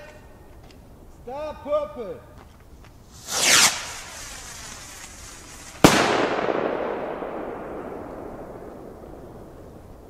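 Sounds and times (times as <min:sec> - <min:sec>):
firework bang with echo: 0:03.2 - 0:10.0.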